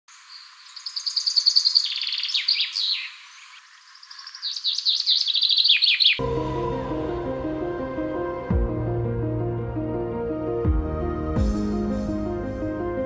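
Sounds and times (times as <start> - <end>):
songbird trilling and whistling: 0.4 - 6.2
soft ambient music: 6.2 - 13.0.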